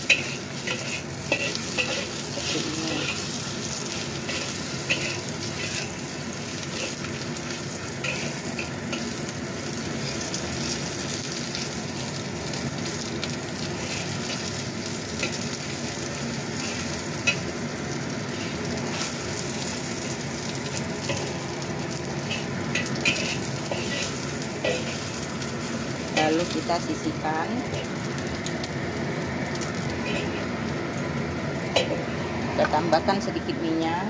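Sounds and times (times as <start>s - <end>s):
spatula scraping a wok: 0.0s - 9.2s, 13.8s - 14.6s, 22.1s - 26.3s, 30.0s - 30.5s
food sizzling in hot oil: 0.0s - 34.0s.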